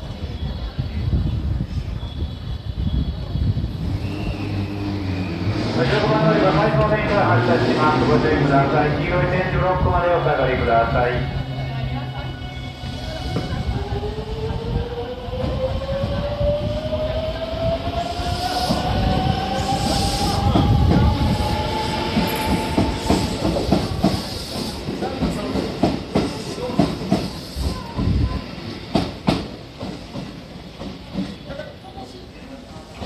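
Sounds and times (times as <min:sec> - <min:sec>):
electric train whine: 0:00.0 - 0:25.5.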